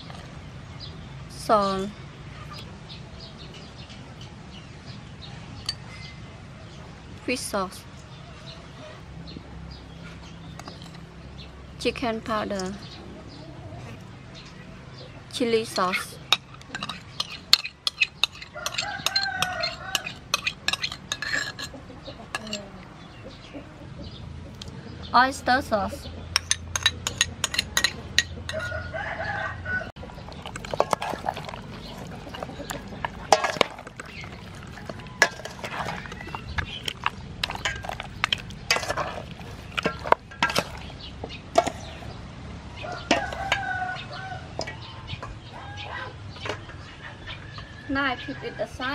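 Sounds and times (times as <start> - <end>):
metal spoon scraping bowl: 15.9 - 21.7, 22.3 - 22.7, 26.4 - 28.8, 30.0 - 41.0, 41.6 - 42.2
rooster crowing: 18.5 - 20.2, 28.5 - 30.0, 42.8 - 44.6.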